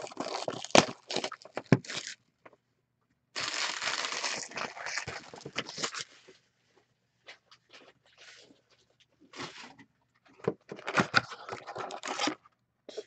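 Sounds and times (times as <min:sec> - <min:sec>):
card packaging crinkling and tearing: 0:00.0 - 0:02.2, 0:03.4 - 0:06.2, 0:10.7 - 0:12.4.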